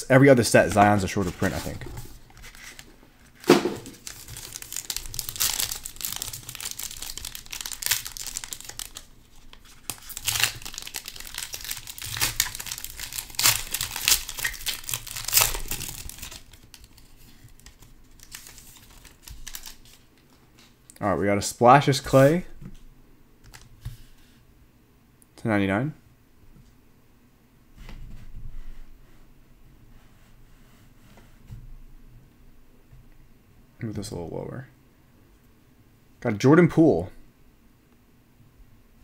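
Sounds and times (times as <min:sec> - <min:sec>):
plastic wrapping crinkling and tearing: 0:00.7 - 0:20.7.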